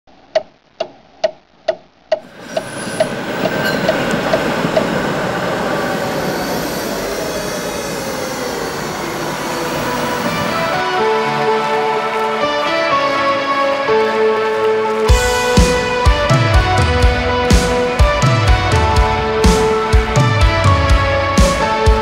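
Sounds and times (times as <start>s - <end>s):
tram rolling: 2.2s - 11.0s
tram whine: 2.2s - 14.3s.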